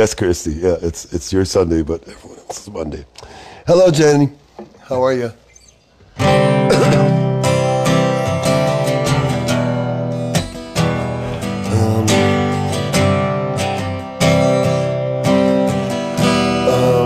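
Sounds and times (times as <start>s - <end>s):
acoustic guitar strumming: 5.4s - 17.0s.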